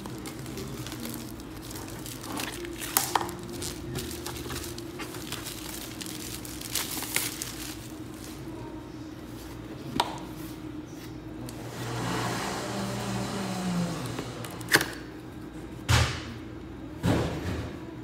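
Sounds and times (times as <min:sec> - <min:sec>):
plastic shrink-wrap crinkling: 0:00.0 - 0:08.7.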